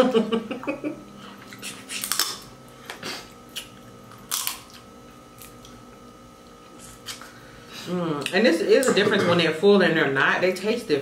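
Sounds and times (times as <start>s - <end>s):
crab shells cracking: 4.2s - 4.8s.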